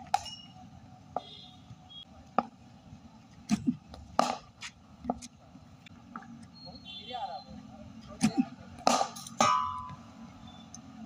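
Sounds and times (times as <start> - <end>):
cricket bat striking ball: 8.8 - 10.0.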